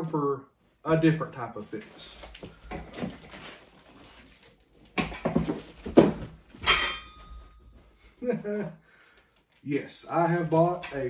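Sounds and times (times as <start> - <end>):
cardboard rustling and scraping: 1.6 - 6.6.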